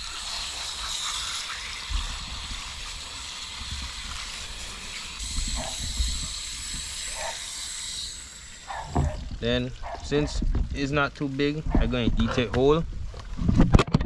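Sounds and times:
hose nozzle spraying water: 0.0s - 11.2s.

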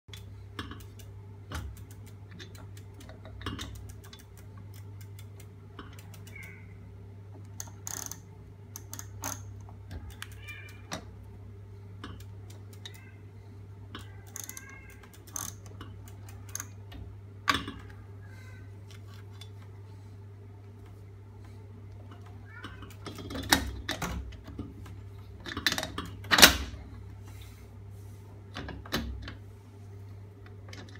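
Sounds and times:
metal clicks and knocks: 0.1s - 6.5s, 22.0s - 26.8s
steady low hum: 0.1s - 30.9s.

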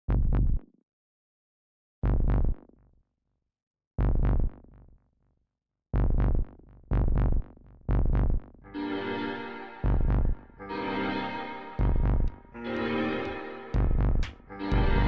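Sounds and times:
deep synthesizer stabs: 8.7s - 15.0s.

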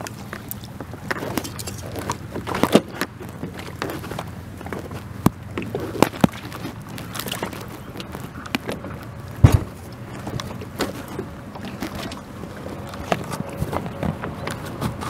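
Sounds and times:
clicks and knocks of handling: 0.0s - 15.0s
loud low thump: 9.4s - 9.8s.

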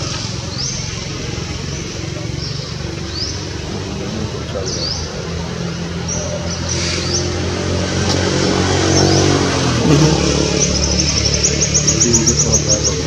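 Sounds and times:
small birds chirping: 0.0s - 13.0s
vehicle engine running: 0.0s - 13.0s.

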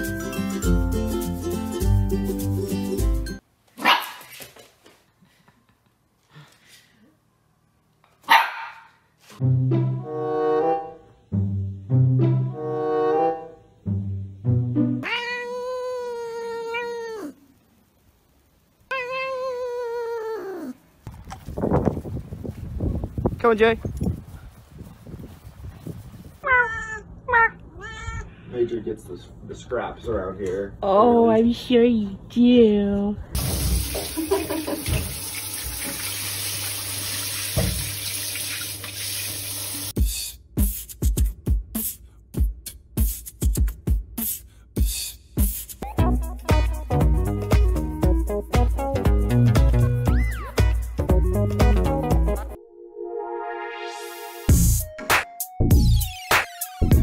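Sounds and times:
low musical notes: 9.4s - 15.0s, 45.8s - 56.2s
cat meowing: 15.0s - 17.4s, 18.9s - 20.8s, 26.4s - 28.3s
shower water spraying: 33.4s - 40.0s
music with heavy beat: 40.0s - 52.6s, 54.5s - 57.0s.

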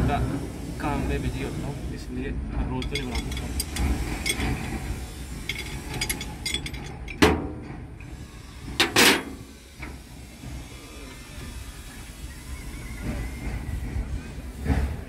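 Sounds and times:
loud metallic clanks: 2.5s - 8.0s, 8.6s - 10.0s.

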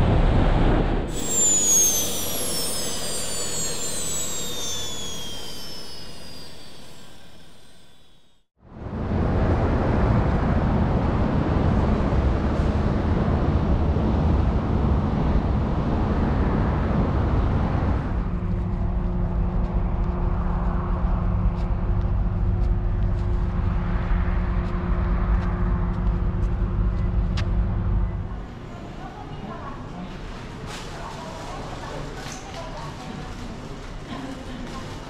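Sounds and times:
vehicle road and engine noise: 8.7s - 30.6s.

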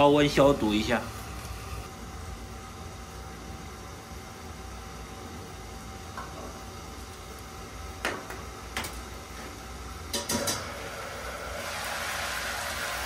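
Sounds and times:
food frying with a hiss: 10.5s - 13.0s.

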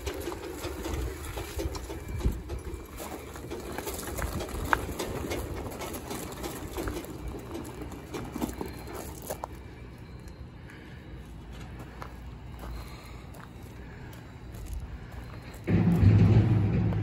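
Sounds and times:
tires rolling on gravel: 0.0s - 9.8s
footsteps on gravel: 0.0s - 16.9s.

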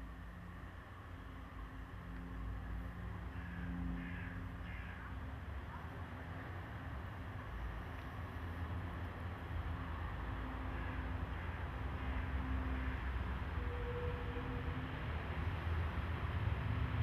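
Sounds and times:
bird calling: 3.3s - 5.2s.

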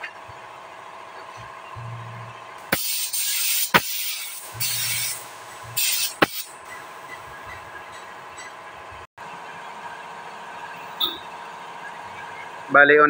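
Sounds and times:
spray gun hissing: 2.7s - 7.0s.

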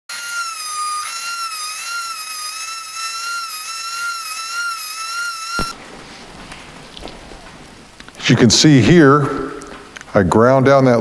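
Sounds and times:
rotary tool grinding whine: 0.1s - 5.8s.

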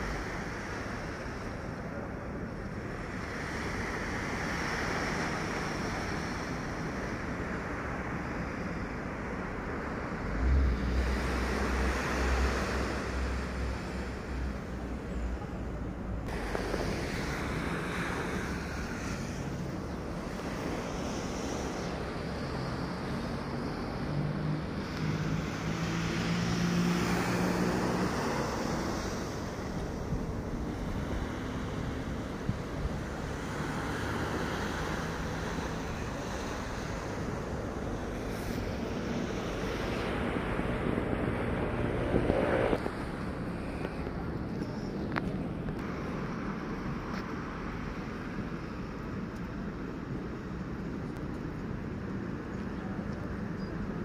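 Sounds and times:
waves washing on a sandy shore: 0.0s - 15.0s, 16.3s - 41.8s.

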